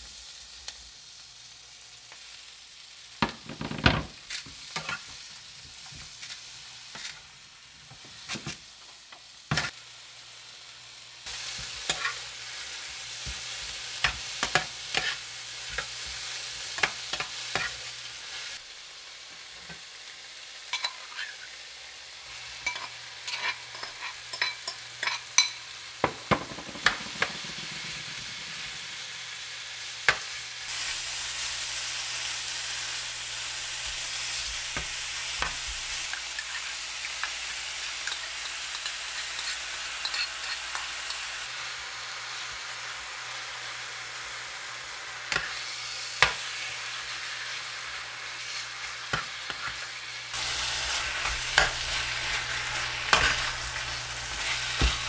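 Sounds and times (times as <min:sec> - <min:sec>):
meat and vegetables sizzling in pan: 0:00.0 - 0:55.0
metal spoon clinking and scraping pan: 0:11.5 - 0:12.2, 0:14.0 - 0:17.8, 0:20.7 - 0:21.4, 0:22.5 - 0:28.8, 0:35.4 - 0:41.3, 0:48.4 - 0:49.8, 0:50.4 - 0:55.0.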